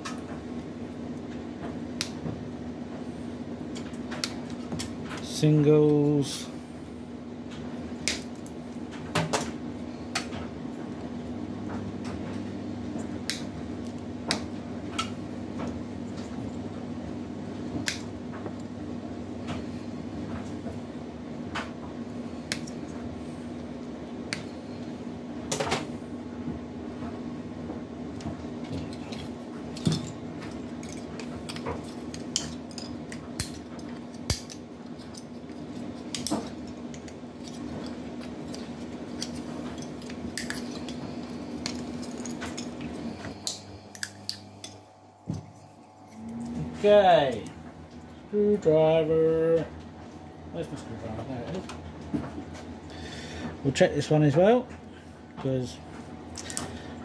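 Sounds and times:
steady hum: 0.0s - 57.0s
side cutters snipping wires: 30.8s - 35.4s, 43.4s - 44.8s.

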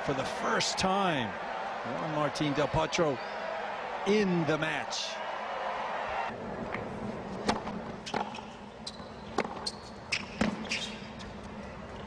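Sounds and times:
tennis ball pops off racquets: 6.7s - 8.4s
shoes squeaking on court: 6.7s - 12.0s.

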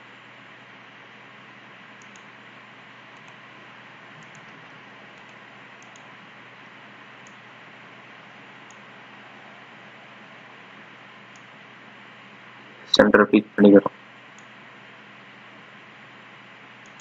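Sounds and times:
microphone hiss: 0.0s - 17.0s
computer mouse clicks: 2.0s - 2.3s, 3.2s - 3.4s, 4.2s - 6.1s, 7.2s - 7.4s, 8.6s - 8.8s, 11.3s - 11.5s, 16.8s - 17.0s.

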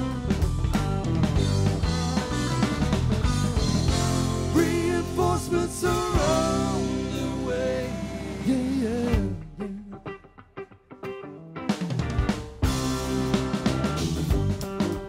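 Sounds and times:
electric guitar lead notes: 0.0s - 15.0s
rock band playing: 0.0s - 15.0s.

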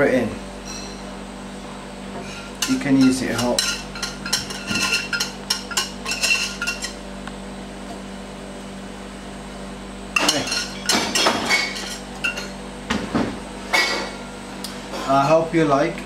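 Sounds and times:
steady low hum: 0.0s - 16.0s
whisk clinking against metal jug: 2.6s - 7.0s.

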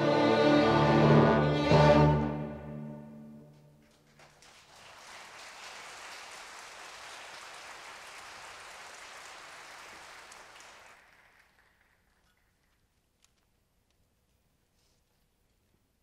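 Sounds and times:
audience applauding: 3.9s - 12.8s.

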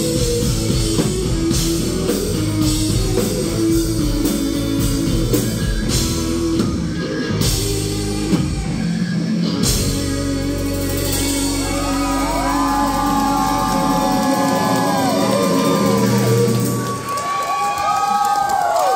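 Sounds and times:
live rock band playing: 0.0s - 17.8s
audience whooping and shouting: 10.9s - 18.9s.

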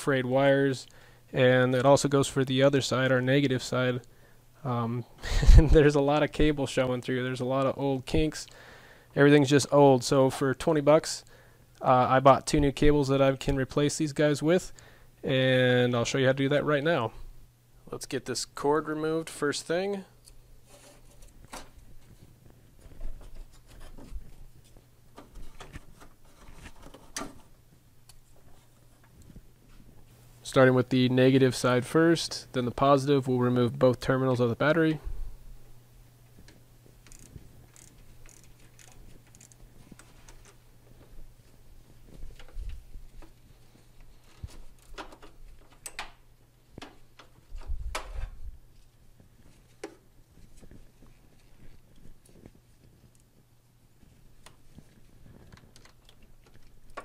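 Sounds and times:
faint steady hum: 0.0s - 57.0s
small sharp clicks and rustles: 36.3s - 40.6s, 41.4s - 57.0s.

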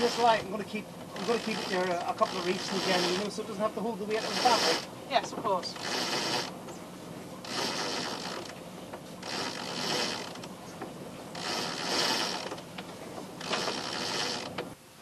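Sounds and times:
winch hauling rope: 0.0s - 14.8s.

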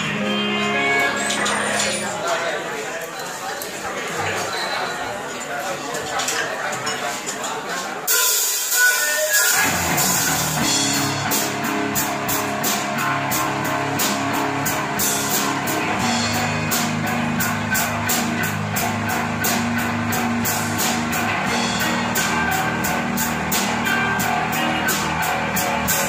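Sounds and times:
live rock band: 0.0s - 2.2s, 8.1s - 26.0s
steady cymbal beat: 8.1s - 26.0s.

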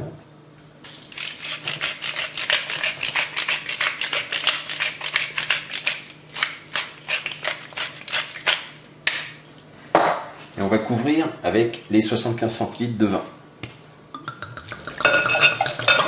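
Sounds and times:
pepper mill grinding: 0.8s - 8.9s.

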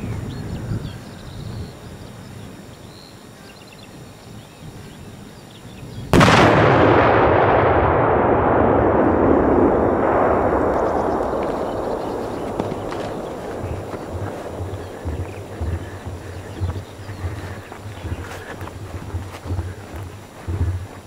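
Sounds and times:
firecracker bang: 6.2s - 20.8s
rumbling echo: 6.2s - 21.0s.

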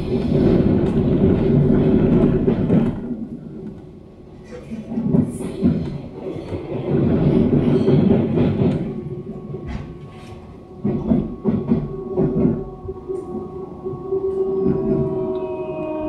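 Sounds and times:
wheels rumbling on rails: 0.0s - 16.0s.

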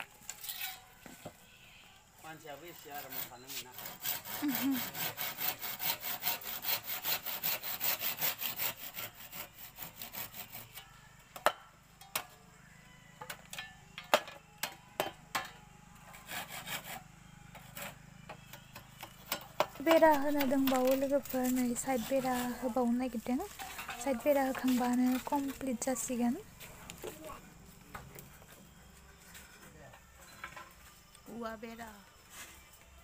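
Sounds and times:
hand saw cutting bamboo: 2.6s - 10.9s, 16.0s - 18.0s, 19.0s - 25.8s.

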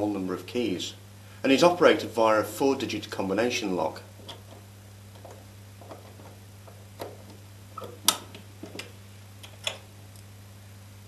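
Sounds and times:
combination dials clicking: 4.2s - 9.9s.

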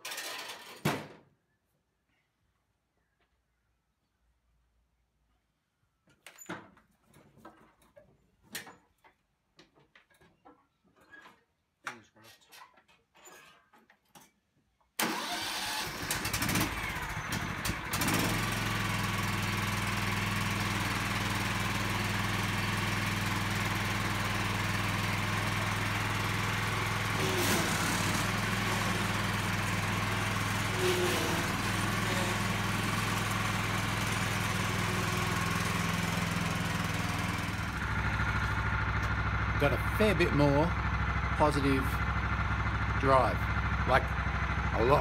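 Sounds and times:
engine starter cranking: 15.0s - 18.5s
mower engine running: 15.0s - 45.0s.

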